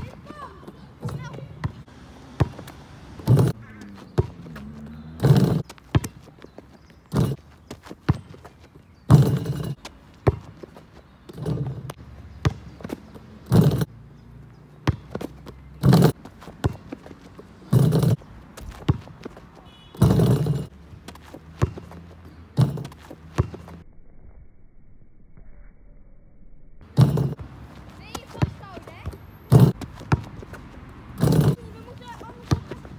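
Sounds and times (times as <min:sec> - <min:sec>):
basketball bouncing on court: 0:00.0 - 0:13.9, 0:14.7 - 0:23.8, 0:26.8 - 0:32.9
heavy thuds of ball and landing: 0:02.4 - 0:03.6, 0:04.2 - 0:06.2, 0:09.1 - 0:10.5, 0:13.4 - 0:13.9, 0:14.9 - 0:16.9, 0:17.7 - 0:19.2, 0:19.9 - 0:20.8, 0:22.5 - 0:23.8, 0:26.8 - 0:27.5, 0:28.2 - 0:30.3, 0:31.2 - 0:31.6.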